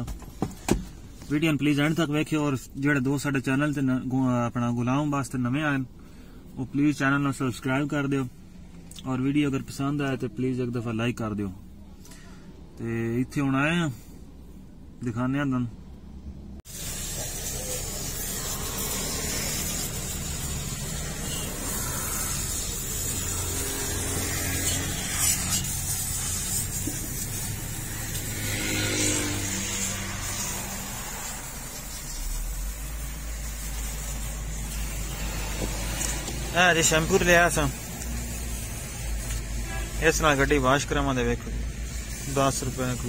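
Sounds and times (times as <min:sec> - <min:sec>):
car wash machine hiss: 0:16.7 - 0:43.0.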